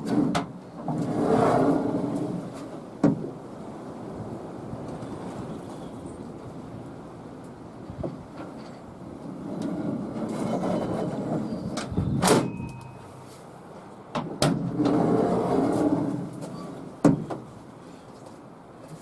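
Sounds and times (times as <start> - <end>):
steel bars rattling and scraping: 8.4 - 12.8
tailgate shutting clunk: 11.8 - 12.7.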